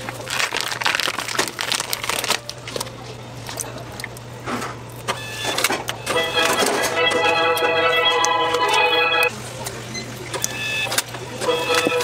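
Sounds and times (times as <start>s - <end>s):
plastic bag crinkling: 0.0s - 3.8s.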